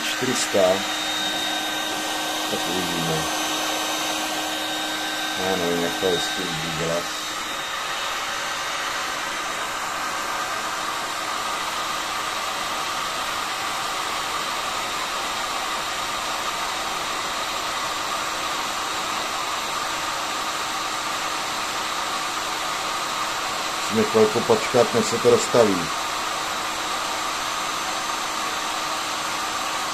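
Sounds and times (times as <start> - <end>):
hot air gun blowing: 0.0 - 13.4.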